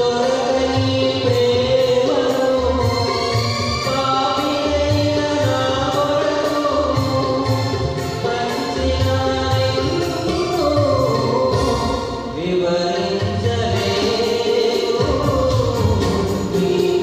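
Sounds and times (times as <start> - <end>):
instrumental accompaniment with beat: 0.0 - 17.0
man singing devotional song: 0.0 - 17.0.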